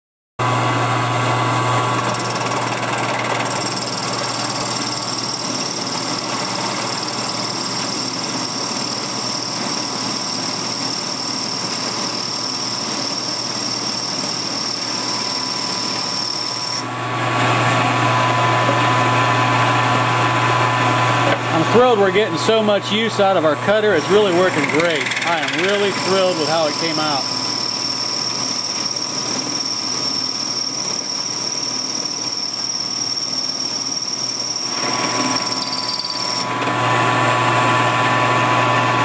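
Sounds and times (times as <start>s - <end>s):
milling machine motor hum: 0.4s - 22.8s, 23.4s - 39.0s
high cutting whine: 23.4s - 36.6s.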